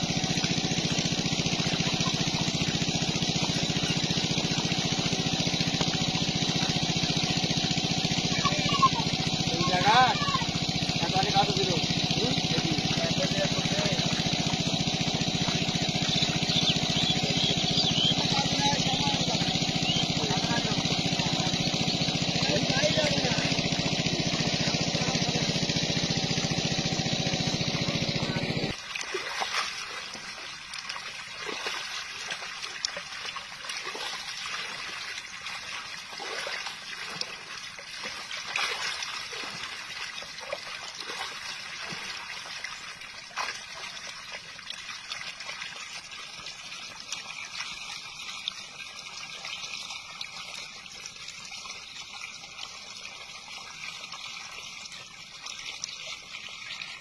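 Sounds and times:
engine running: 0:00.0 - 0:42.2
fish splashing at water surface: 0:00.0 - 0:57.0
water trickling: 0:00.0 - 0:57.0.

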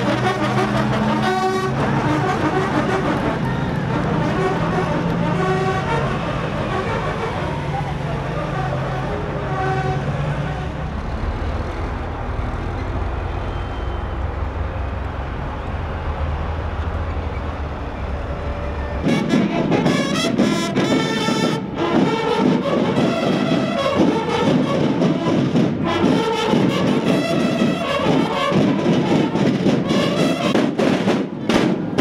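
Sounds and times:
marching band playing: 0:00.0 - 0:10.9, 0:18.5 - 0:32.0.

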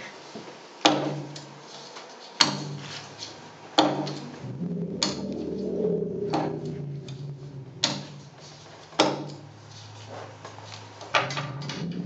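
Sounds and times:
low steady hum: 0:04.1 - 0:10.3, 0:11.2 - 0:12.0.

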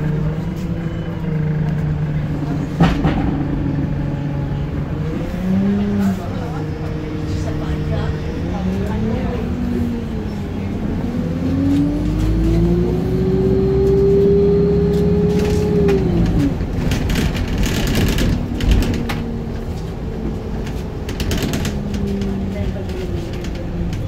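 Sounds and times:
bus drivetrain whine: 0:00.0 - 0:24.0
thump: 0:02.8 - 0:03.6.

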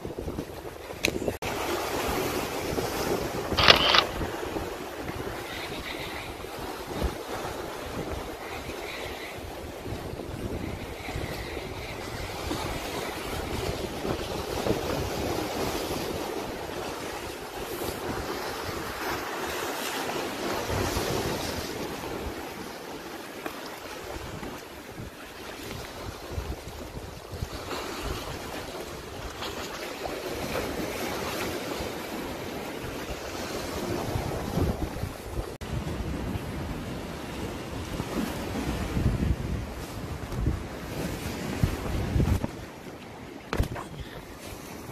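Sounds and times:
wind buffeting microphone: 0:00.0 - 0:22.8, 0:24.0 - 0:44.9
sea waves rushing: 0:00.0 - 0:44.9.

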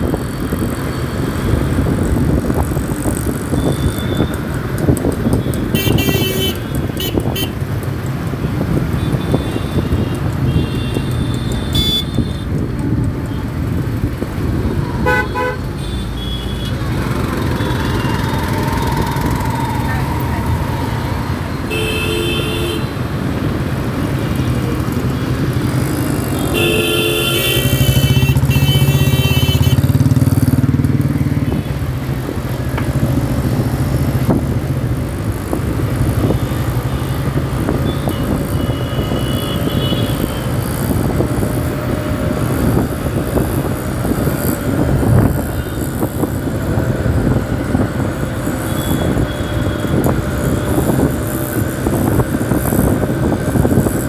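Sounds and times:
motorcycle engine and road rumble: 0:00.0 - 0:54.0
vehicle horns honking: 0:05.4 - 0:07.6, 0:09.0 - 0:12.5, 0:14.9 - 0:16.8, 0:21.6 - 0:23.0, 0:26.3 - 0:30.0, 0:36.8 - 0:40.5.

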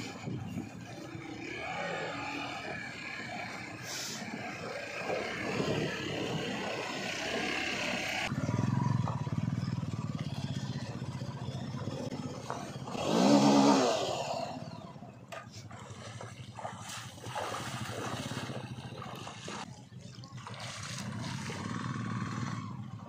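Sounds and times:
clattering riding noise: 0:00.0 - 0:13.3
motorcycle engine revving: 0:00.0 - 0:23.0.

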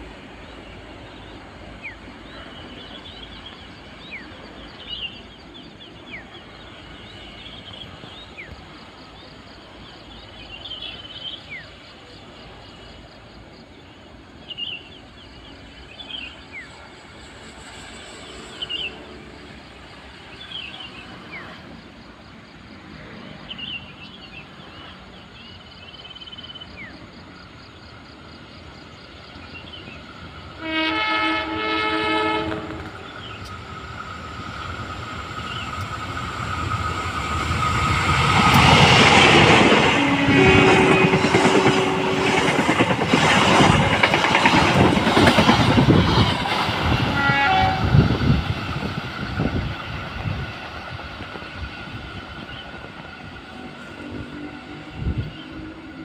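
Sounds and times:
train horn: 0:30.5 - 0:33.2, 0:39.5 - 0:42.6, 0:46.9 - 0:48.4
wheels clacking over rail joints: 0:32.5 - 0:53.8.

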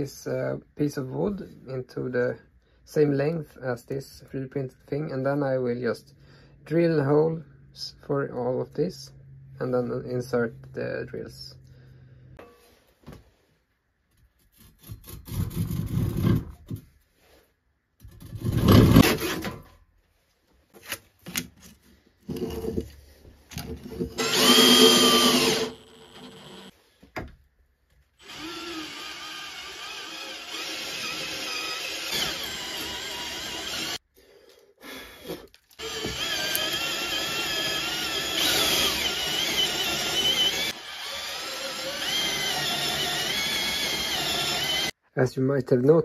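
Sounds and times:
power drill boring into wood: 0:24.1 - 0:26.8, 0:28.2 - 0:34.0, 0:35.2 - 0:45.0.

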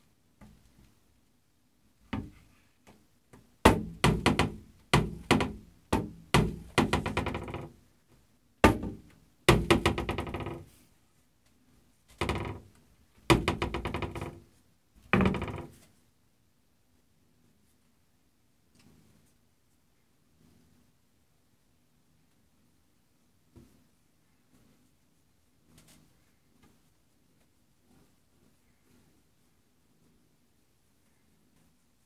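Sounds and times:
cupboard door knocking and rattling: 0:02.1 - 0:02.5, 0:03.6 - 0:07.8, 0:08.6 - 0:10.8, 0:12.1 - 0:15.8.

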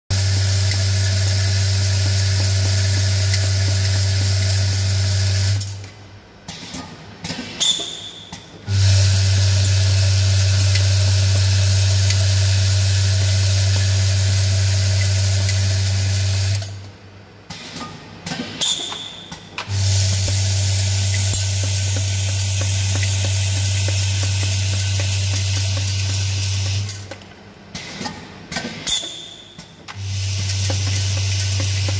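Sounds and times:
machine electric hum: 0:00.1 - 0:06.5, 0:08.1 - 0:17.5, 0:18.7 - 0:31.9.

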